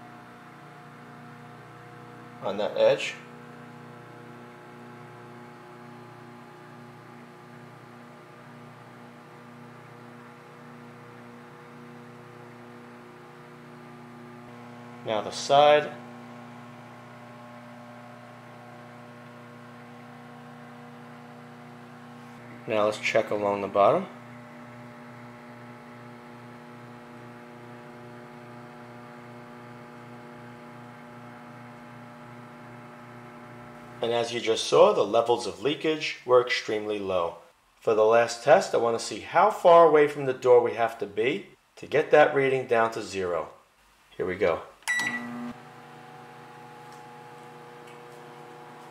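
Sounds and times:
microwave oven humming: 0.0 - 35.6, 44.8 - 48.9.

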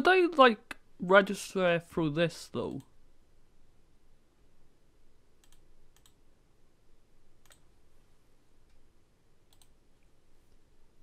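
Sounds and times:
computer mouse clicks: 5.4 - 6.2, 7.4 - 7.7, 9.5 - 9.8.

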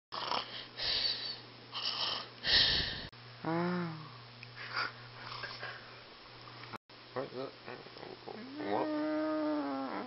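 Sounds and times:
person moaning: 3.4 - 4.1, 8.3 - 10.0
person snoring: 3.4 - 4.2.

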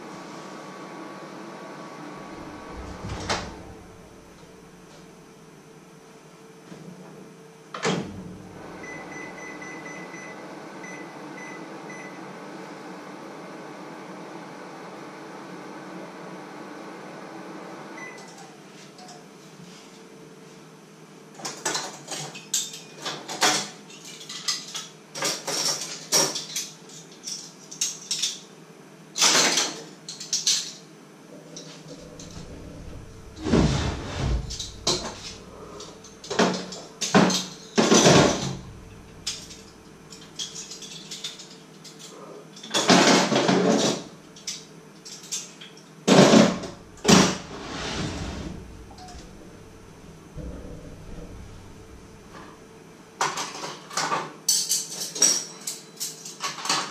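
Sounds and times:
metal cutlery clinking and clattering: 21.5 - 28.4, 29.2 - 30.8, 39.2 - 43.0, 53.3 - 56.9.

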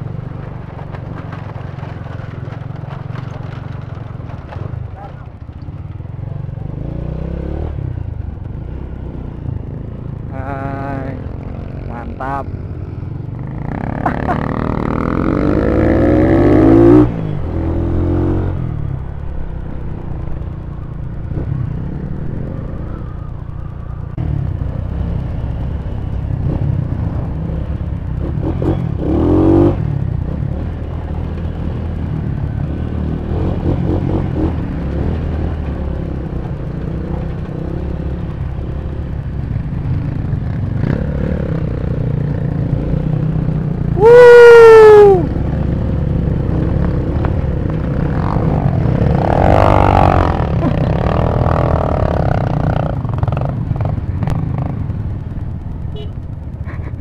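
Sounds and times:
clatter over rough ground: 0.0 - 7.3
motorcycle engine running: 0.0 - 57.0.

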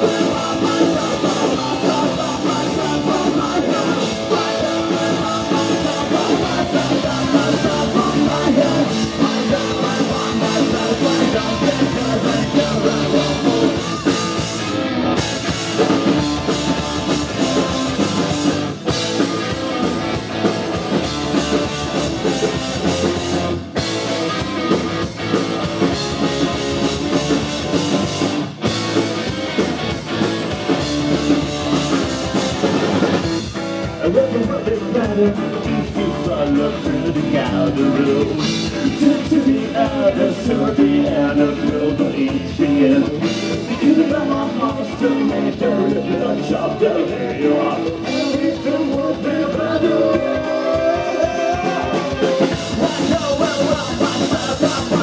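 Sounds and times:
man singing lead vocal: 0.0 - 14.6, 33.8 - 55.0
bass guitar: 0.0 - 55.0
drum kit: 0.0 - 55.0
electric guitar: 0.0 - 55.0.

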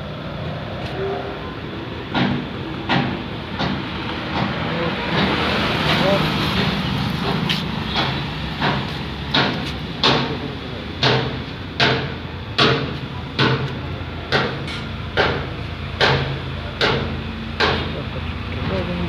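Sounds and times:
low engine hum: 0.0 - 19.0.

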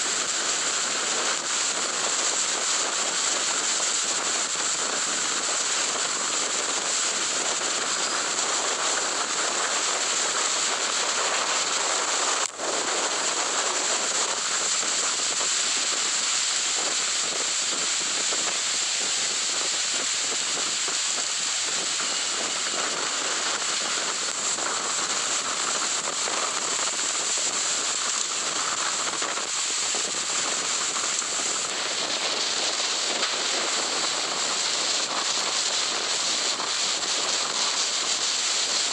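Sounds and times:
driving rain: 0.0 - 38.9
hurricane-force wind: 0.0 - 38.9.

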